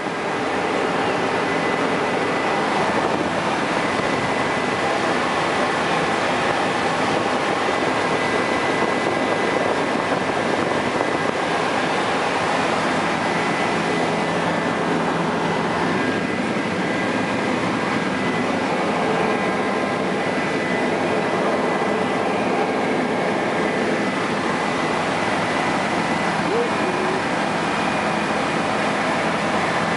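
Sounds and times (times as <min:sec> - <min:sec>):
helicopter engine and rotor noise: 0:00.0 - 0:29.9
thin steady whine: 0:00.0 - 0:29.9.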